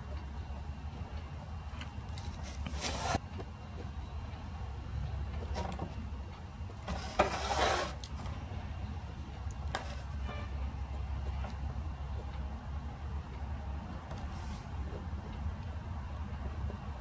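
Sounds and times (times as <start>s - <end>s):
steady low hum: 0.0s - 17.0s
scratchy rustle: 2.2s - 3.2s.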